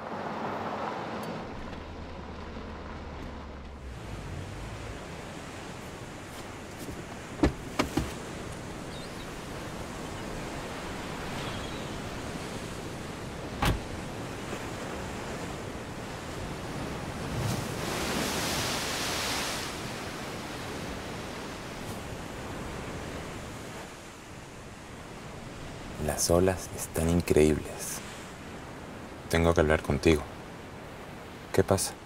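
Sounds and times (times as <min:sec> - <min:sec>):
surf on a beach: 0:00.0 - 0:32.0
car door knock: 0:07.4 - 0:08.2.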